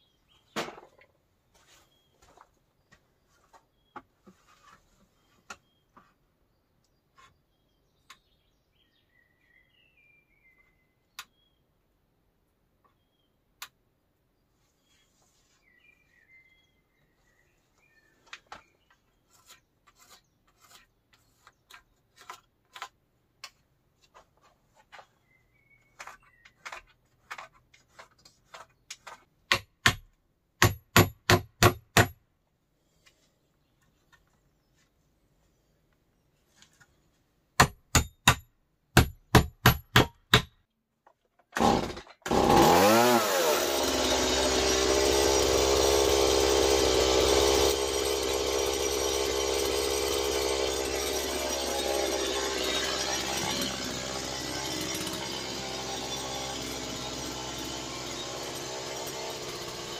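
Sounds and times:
birds chirping: 24.7 - 27.2.

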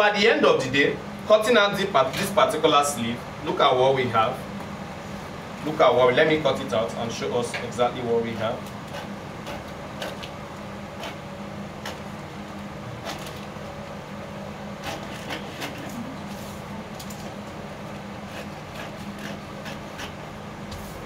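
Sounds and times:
scissors cutting paper: 8.2 - 11.2, 11.8 - 12.3, 13.0 - 13.6, 14.8 - 16.4, 17.0 - 20.2.

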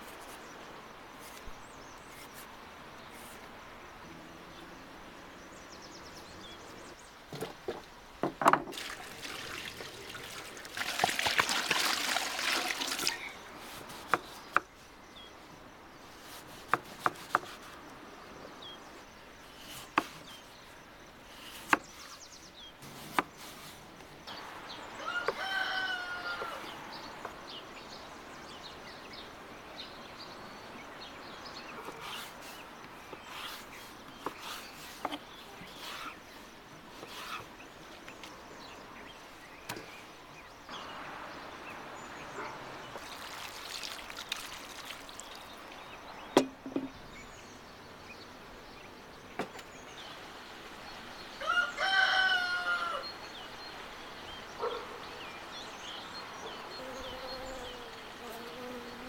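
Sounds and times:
water running into metal pan: 8.7 - 13.2, 43.0 - 45.4
knocks and clicks of handling: 46.4 - 47.0.

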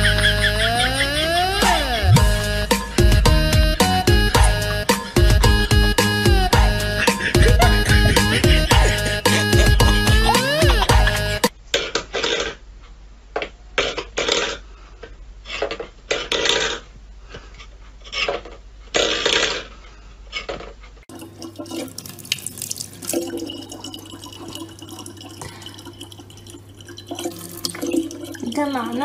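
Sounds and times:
tap water trickling into bottle: 21.1 - 28.6.

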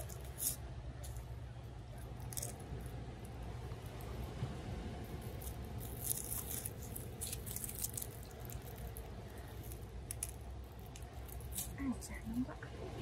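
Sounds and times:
low background rumble: 0.0 - 13.0
corn husk crackling and tearing: 5.1 - 11.8.

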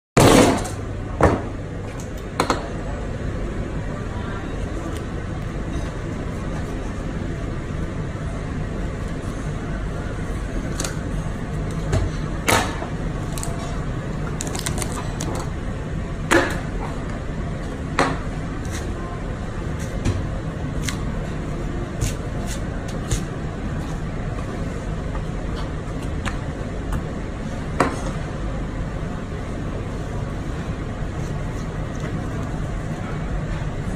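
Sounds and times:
low room hum: 0.2 - 33.9.

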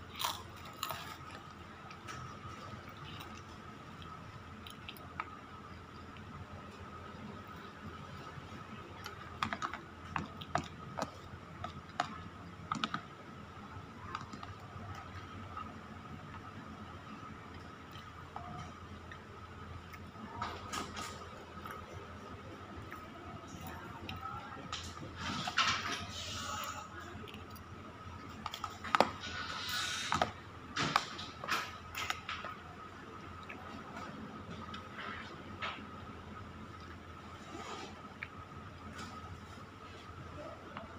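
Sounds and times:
faint steady hum: 0.0 - 40.9.

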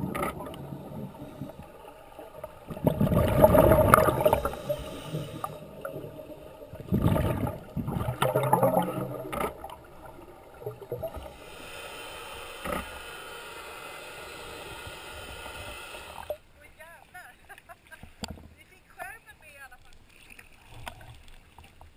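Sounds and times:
underwater bubbles gurgling: 0.0 - 16.4
underwater noise: 0.0 - 18.5.

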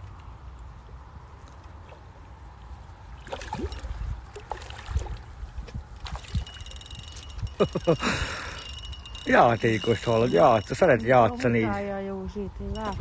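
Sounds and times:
fish thrashing water splashing: 3.2 - 5.3.

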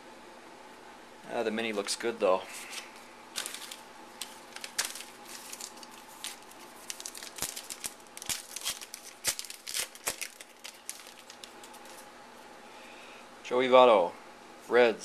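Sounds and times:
foil wrapper tearing and crinkling: 2.7 - 12.1.

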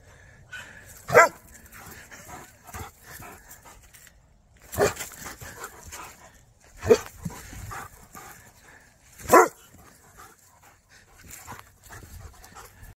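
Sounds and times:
puppy barking: 1.1 - 1.4, 9.3 - 9.6.

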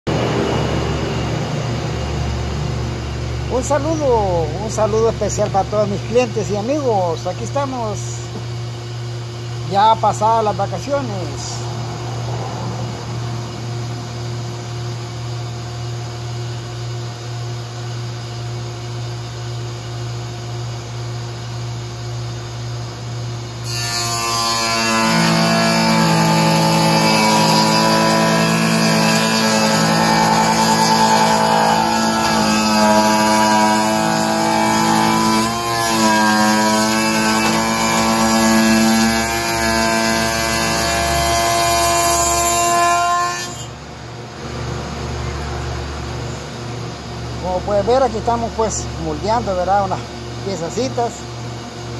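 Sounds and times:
moulding machine cutter whining: 23.6 - 43.8.

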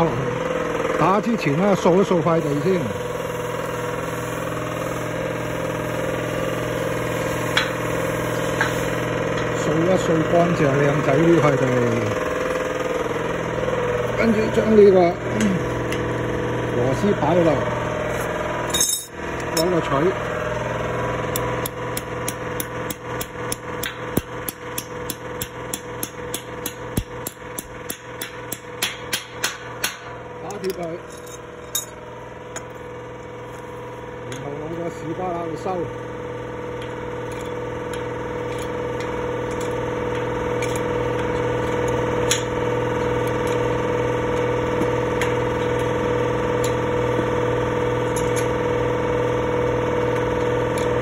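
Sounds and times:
hammer striking metal bolt: 21.3 - 30.8.

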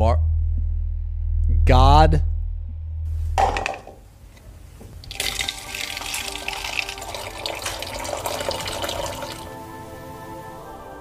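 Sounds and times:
machine pouring liquid into cup: 5.0 - 9.5.

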